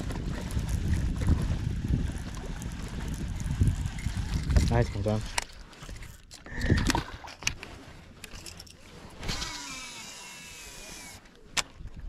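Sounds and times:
fishing reel spool whirring: 0.0 - 4.7, 8.3 - 11.4.

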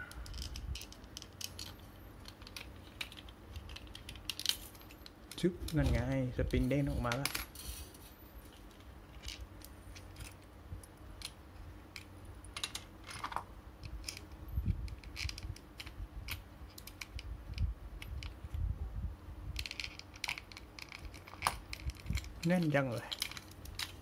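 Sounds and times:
low rumble of handling: 0.0 - 24.0
plastic toy parts clicking: 0.1 - 7.4, 14.9 - 18.4, 19.6 - 24.0.

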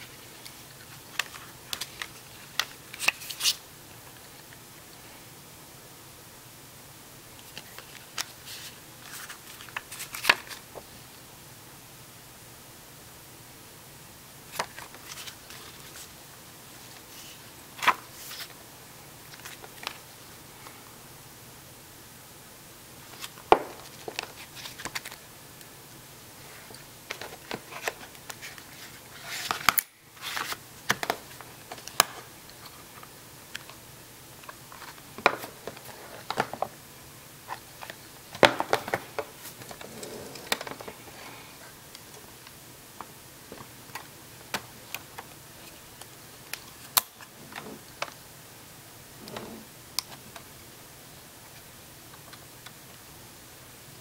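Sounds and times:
paper rustling: 27.1 - 32.0.

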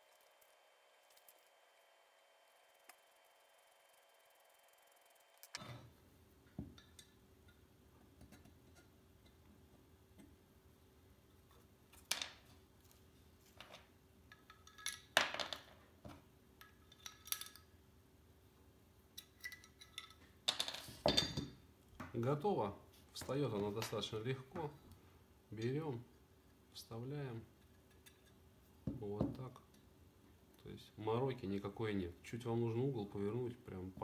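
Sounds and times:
metal parts clicking and clinking: 13.6 - 15.7, 16.6 - 17.7, 19.2 - 21.5.

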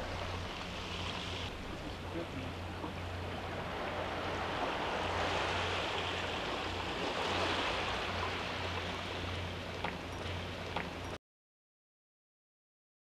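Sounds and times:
waves washing onto pebbly shore: 3.2 - 9.2.

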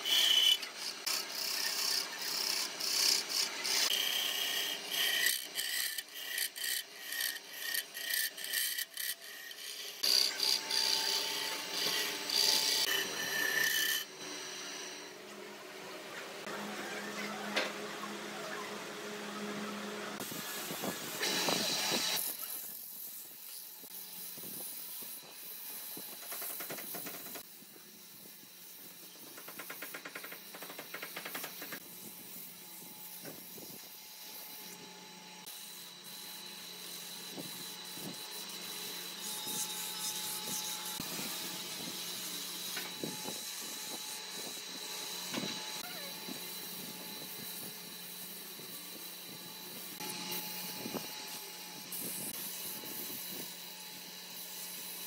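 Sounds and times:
spinning wood scraping: 0.0 - 14.1
lathe motor hum: 0.0 - 15.2.

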